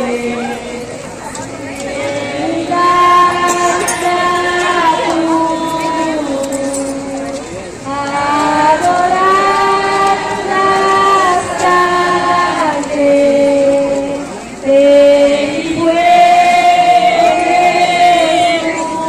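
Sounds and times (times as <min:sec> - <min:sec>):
person singing slow melody: 0:01.7 - 0:19.0.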